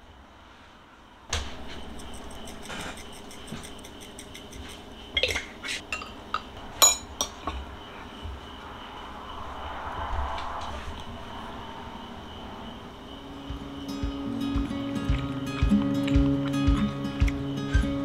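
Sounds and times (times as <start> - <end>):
dishes and chopsticks clinking: 2.4 - 7.6.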